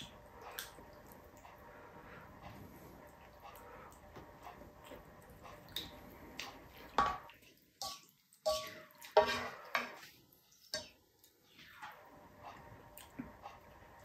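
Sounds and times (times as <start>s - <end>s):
faint eating by hand: 0.0s - 14.0s
plastic ladle scraping a pan: 8.5s - 10.1s.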